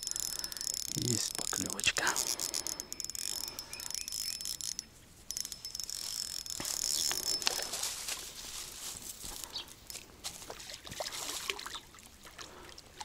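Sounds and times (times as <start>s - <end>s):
fishing reel clicking and whirring: 0.0s - 8.1s, 9.8s - 10.0s.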